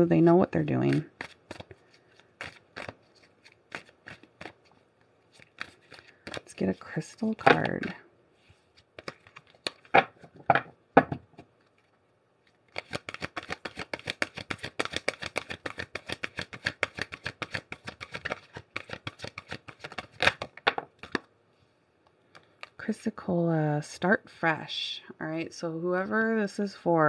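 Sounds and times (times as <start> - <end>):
cards shuffling with quick clicks: 0.6 - 8.0, 8.7 - 10.4, 12.7 - 21.3
cards slapping: 0.8 - 8.0, 8.8 - 10.4, 12.7 - 21.3.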